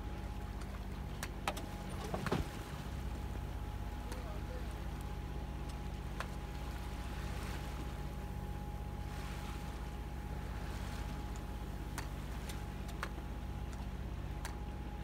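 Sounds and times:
boat engine running: 0.0 - 15.0
faint steady whine: 0.0 - 15.0.

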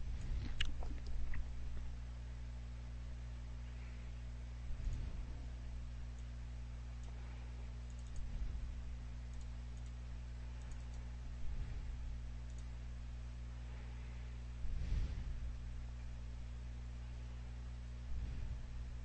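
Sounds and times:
low electrical hum: 0.0 - 19.0
computer mouse clicks: 7.8 - 8.3, 9.3 - 10.0, 10.6 - 11.1, 12.4 - 12.7.

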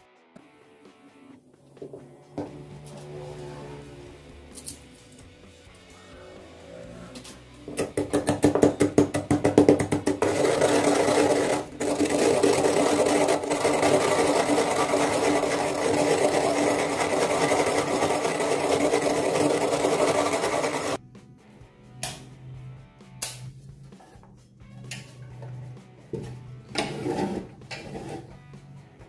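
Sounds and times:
pestle knocking in mortar: 7.7 - 21.0.

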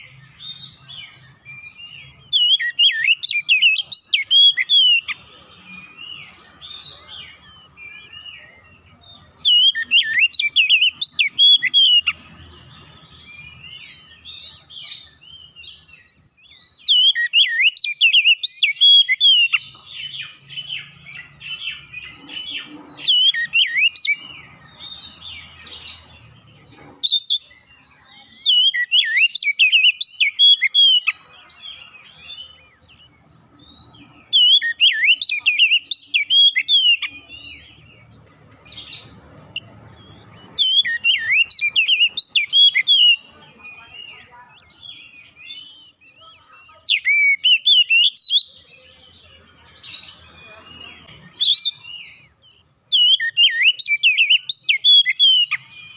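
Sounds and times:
bird singing whistled phrases: 0.2 - 5.2, 9.4 - 12.2, 16.4 - 21.9, 23.0 - 24.2, 28.3 - 33.0, 34.2 - 37.3, 38.7 - 48.8, 49.8 - 55.9.

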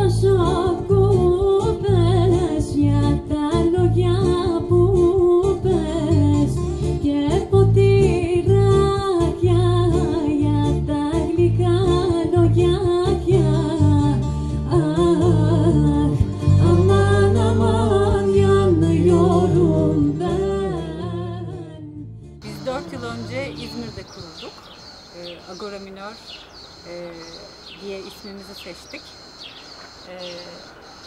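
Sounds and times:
electric bass line: 0.0 - 24.2
person singing: 14.7 - 22.0.

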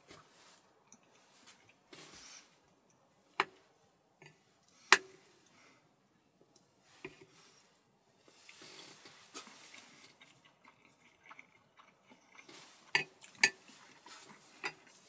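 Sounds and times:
fork clinking and scraping plate: 12.9 - 15.0.

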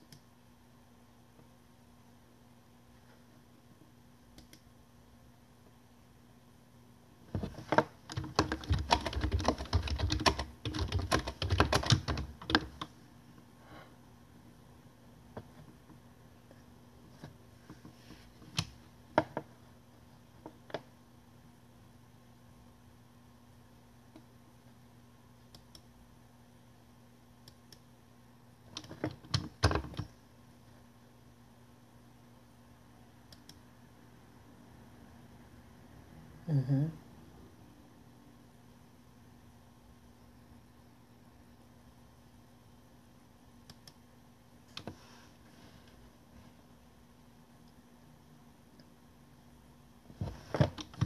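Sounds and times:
fast irregular typing: 7.4 - 12.9
fingers tapping on a device: 7.4 - 12.9.

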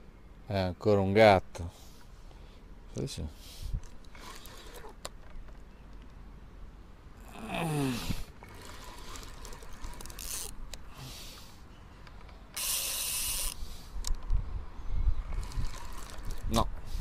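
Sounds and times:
fishing reel being cranked: 4.0 - 5.0, 8.4 - 10.7, 12.6 - 14.2, 15.3 - 16.6.

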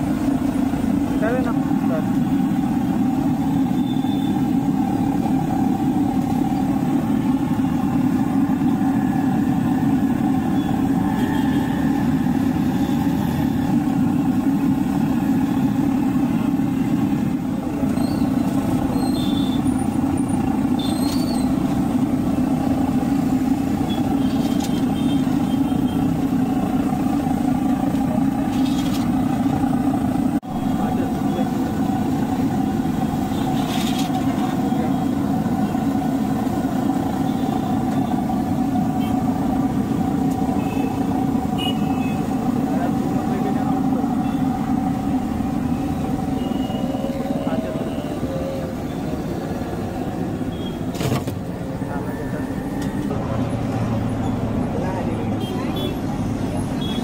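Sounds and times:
deep-frying in hot oil: 0.0 - 46.9.

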